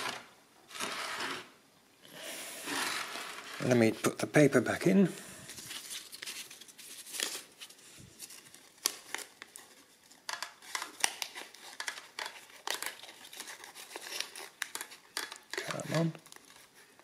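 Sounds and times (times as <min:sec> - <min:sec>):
paper rustling: 0:00.0 - 0:01.5, 0:05.5 - 0:17.0.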